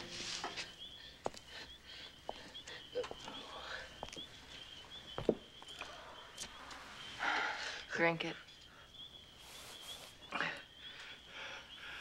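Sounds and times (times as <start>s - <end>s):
crickets chirping: 0.0s - 12.0s
footsteps on paved path: 0.3s - 1.6s, 2.2s - 5.8s.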